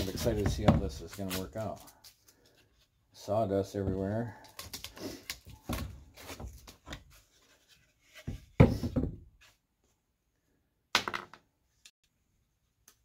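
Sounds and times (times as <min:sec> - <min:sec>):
wooden pieces knocking together: 0:11.0 - 0:11.4.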